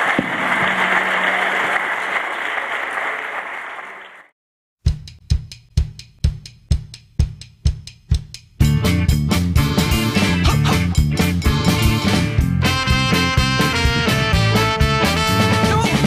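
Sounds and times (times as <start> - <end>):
audience applauding: 0.0 - 4.3
drum beat with heavy kick: 4.8 - 15.0.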